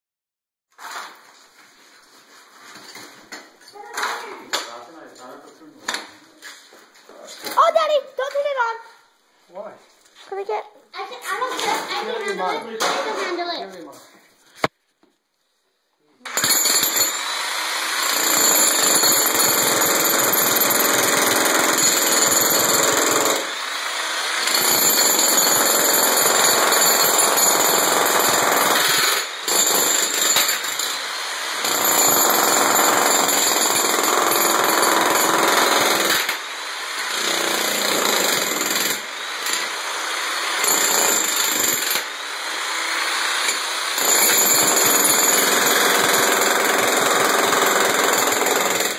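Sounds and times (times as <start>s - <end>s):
demolition hammer chiselling concrete: 16.3s - 48.9s.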